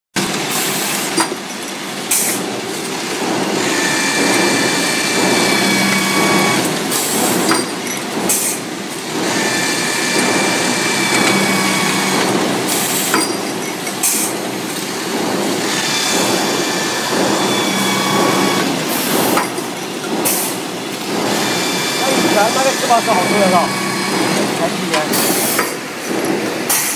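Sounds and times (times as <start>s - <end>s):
loud noisy bursts: 3.1s - 7.5s, 9.1s - 13.2s, 14.9s - 19.6s, 20.4s - 26.7s
machine tool cutting steel: 3.2s - 26.9s
cutter high whine: 3.6s - 6.7s, 9.4s - 12.4s, 15.7s - 18.9s, 21.3s - 25.8s.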